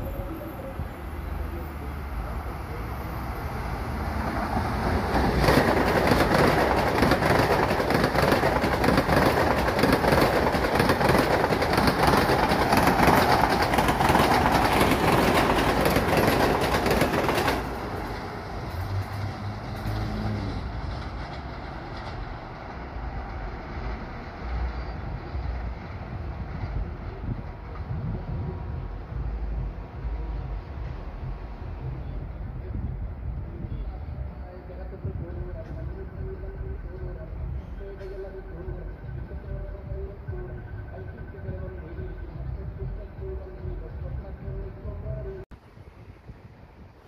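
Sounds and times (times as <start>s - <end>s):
train wheels rushing on rails: 2.6s - 32.1s.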